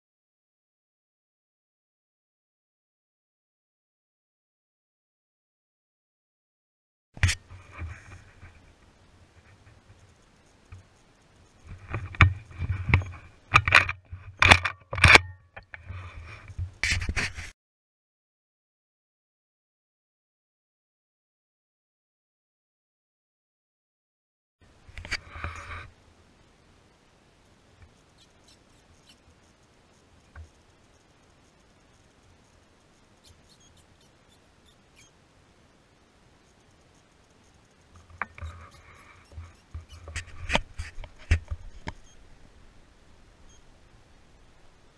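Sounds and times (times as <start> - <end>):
microphone handling clicks and scrapes: 7.2 - 10.0, 11.6 - 17.5, 24.9 - 25.9, 38.0 - 42.2
high-pitched ticks or chirps: 27.8 - 35.2, 36.4 - 40.3.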